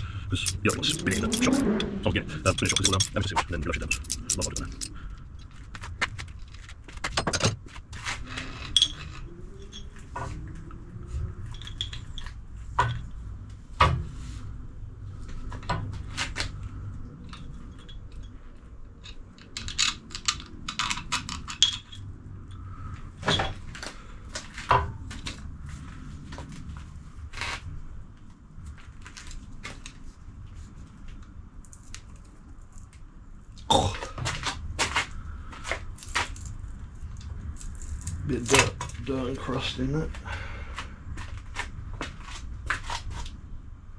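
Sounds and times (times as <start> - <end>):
metal parts clinking and knocking: 0.3 - 10.1, 11.5 - 13.1, 17.2 - 22.6, 23.2 - 23.9.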